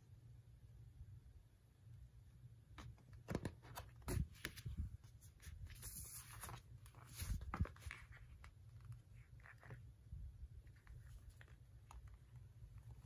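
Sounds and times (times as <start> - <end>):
paper rustling: 2.8 - 13.0.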